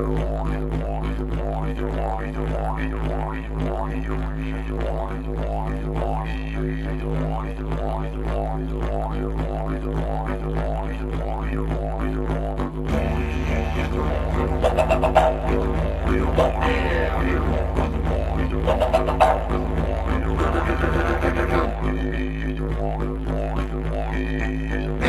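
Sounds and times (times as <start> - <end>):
didgeridoo drone: 0.0 - 25.0.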